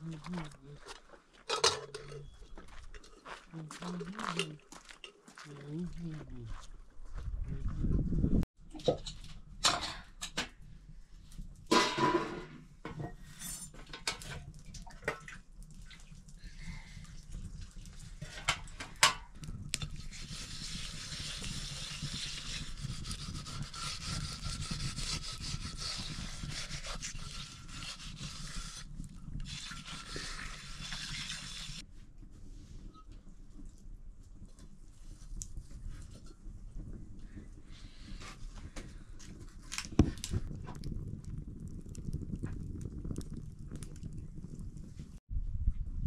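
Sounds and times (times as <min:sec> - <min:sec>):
metal pots and utensils clinking: 0:01.5 - 0:03.2, 0:08.8 - 0:10.4, 0:11.7 - 0:15.3
scraping hiss of metal pan: 0:20.0 - 0:31.8.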